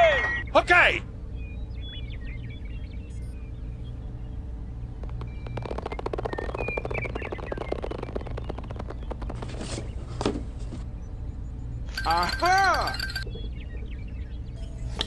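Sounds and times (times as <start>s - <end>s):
steady low hum: 1.0s - 12.0s
small rapid gear clicks: 5.0s - 10.3s.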